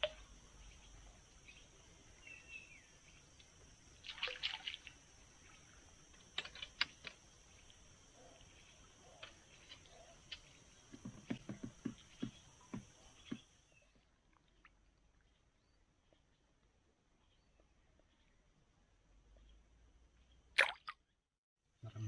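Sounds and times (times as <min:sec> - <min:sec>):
faint high insect buzz: 0:00.0 - 0:13.9
small water splashes and drips: 0:03.4 - 0:13.4, 0:20.6 - 0:21.0.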